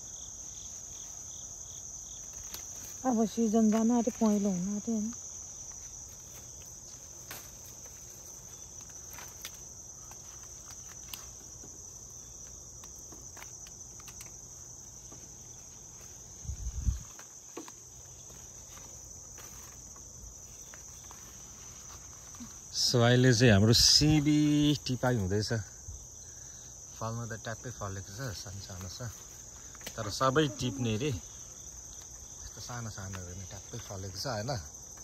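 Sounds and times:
insects chirring: 0.0 - 35.0.

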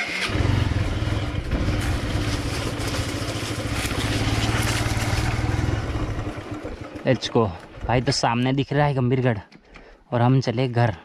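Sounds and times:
motorcycle engine running: 0.0 - 8.8.

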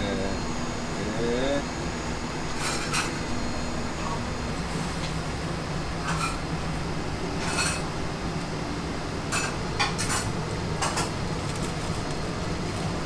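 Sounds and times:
steady low hum: 0.0 - 13.0
dishes and cutlery clinking: 7.4 - 7.8.

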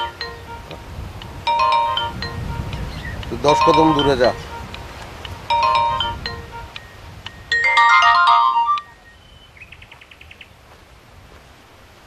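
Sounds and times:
phone ringtone melody: 0.0 - 9.0.

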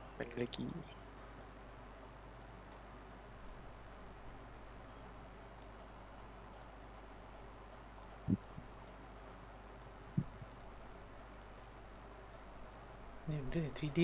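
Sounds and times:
low background hum: 0.0 - 14.0
computer mouse clicks: 2.4 - 2.9, 5.6 - 5.8, 6.5 - 6.8, 8.0 - 9.0, 9.8 - 10.8.

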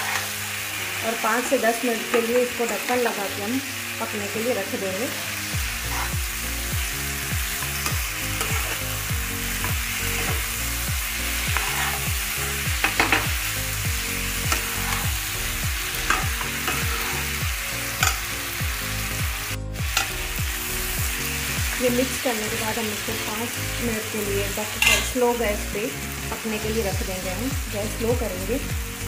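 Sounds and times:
spatula scraping a pan: 0.0 - 0.6, 5.7 - 6.4, 7.6 - 8.9, 9.6 - 10.6, 11.3 - 13.3, 14.4 - 17.4
food sizzling in a pan: 0.0 - 29.0.

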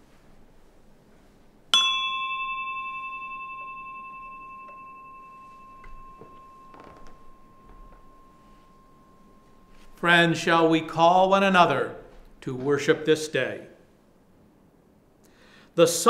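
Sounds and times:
small brass bell ringing: 1.7 - 10.0.

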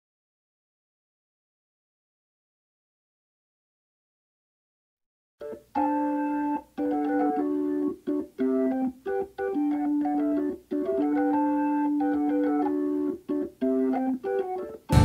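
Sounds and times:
keyboard music of held chords: 5.4 - 15.0.

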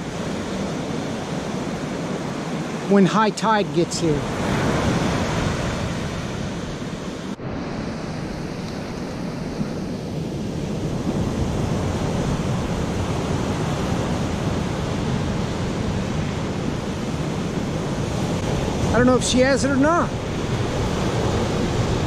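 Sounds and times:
ocean surf breaking on beach: 0.0 - 22.0.

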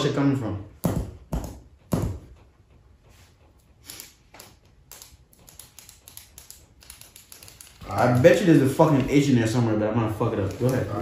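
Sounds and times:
pens scratching on paper: 3.1 - 11.0.

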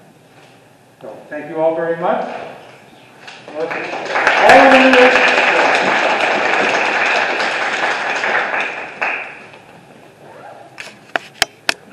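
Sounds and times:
people clapping: 3.2 - 9.6.

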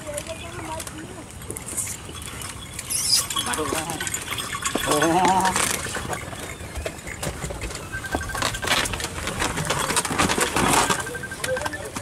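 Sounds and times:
wooden cart creaking and knocking: 0.0 - 12.0
wavering squeal: 1.8 - 5.0, 5.6 - 9.2.

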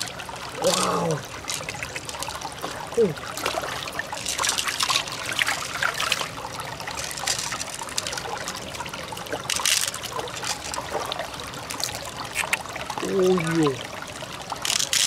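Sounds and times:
wet squelching and trickling: 0.0 - 13.8, 14.5 - 15.0
small sharp clicks: 11.8 - 12.7.

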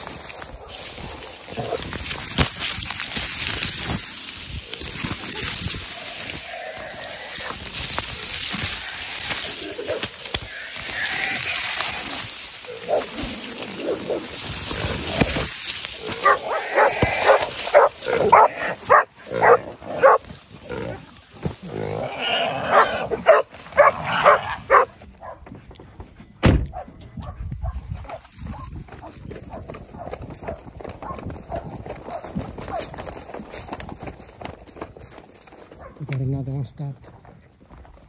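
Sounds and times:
dry cane stalks crackling: 0.0 - 25.0
hog squealing: 5.3 - 14.3, 16.0 - 20.2.

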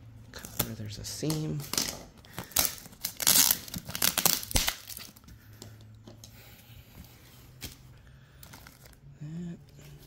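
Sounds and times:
plastic bag crinkling: 0.4 - 5.3.

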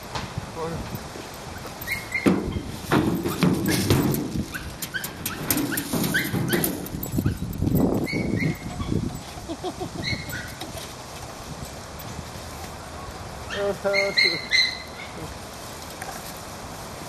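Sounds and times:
scuffing and thumping of movement: 0.0 - 9.5
dog whining and yipping: 1.6 - 2.4, 4.5 - 9.4, 10.0 - 10.7, 13.5 - 15.2.

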